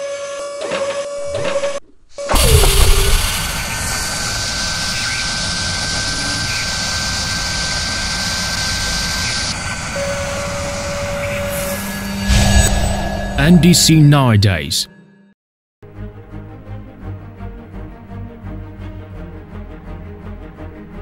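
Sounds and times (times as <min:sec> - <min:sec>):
hiss: 0:02.2 - 0:12.2
machine spindle hit: 0:02.3 - 0:03.9
drill spindle whirring roar: 0:02.3 - 0:12.2.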